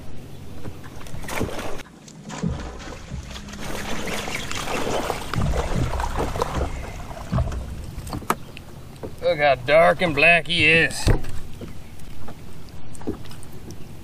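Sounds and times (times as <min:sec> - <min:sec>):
fish splashing at water surface: 0:01.2 - 0:09.0.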